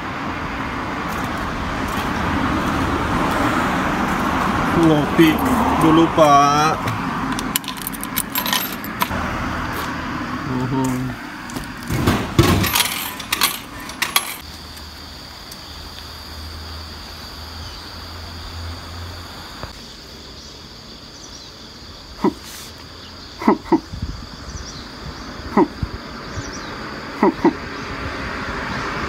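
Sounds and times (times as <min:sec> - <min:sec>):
vending machine clattering: 0:06.2 - 0:09.1, 0:11.6 - 0:14.4
high insect drone: 0:14.4 - 0:29.0.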